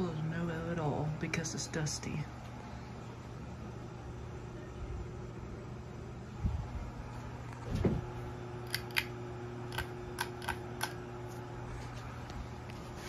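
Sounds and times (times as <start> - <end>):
ceiling fan motor hum: 0.0 - 13.0
sharp clicks: 8.6 - 11.0.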